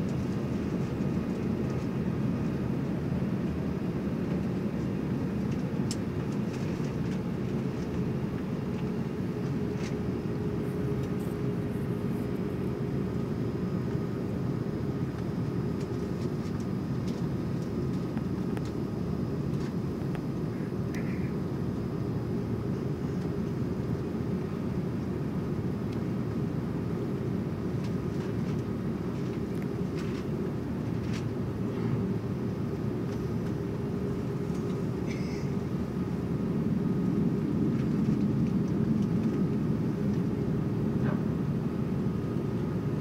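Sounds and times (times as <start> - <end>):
aircraft cabin low rumble: 0.0 - 43.0
faint steady hum: 0.0 - 43.0.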